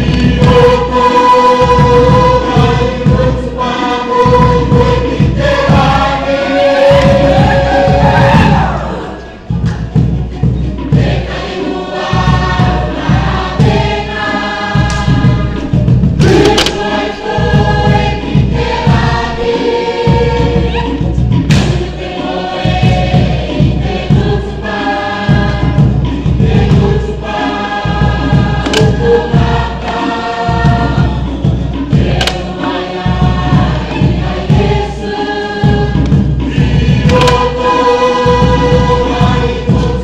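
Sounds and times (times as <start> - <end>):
group singing in harmony: 0.0 - 40.0
steady drum beat: 0.0 - 40.0.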